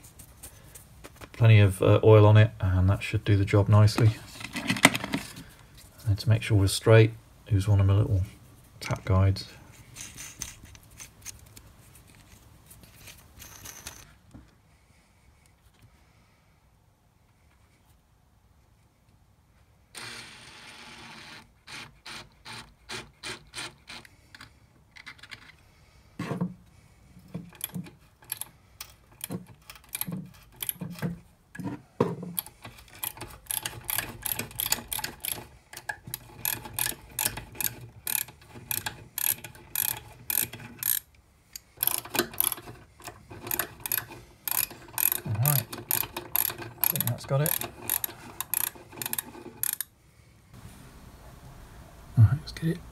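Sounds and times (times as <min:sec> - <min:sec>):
ratcheting tap wrench clicking: 0:32.4 - 0:49.9.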